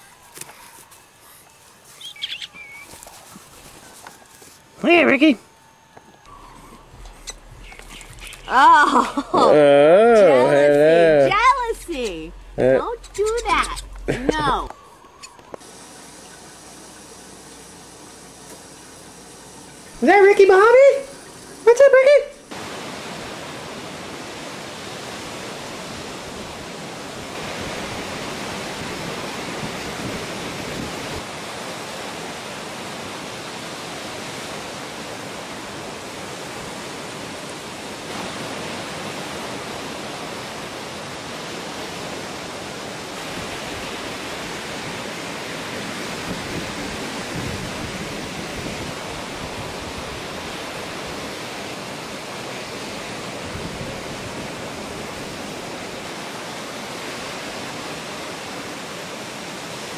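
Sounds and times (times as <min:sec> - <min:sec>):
ocean surf breaking on a reef: 0:06.2 - 0:59.9.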